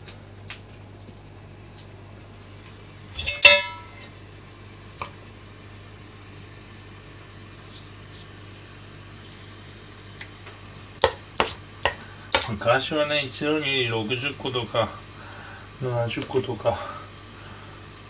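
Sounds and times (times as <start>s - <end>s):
metallic clang: 3.2s - 4.1s.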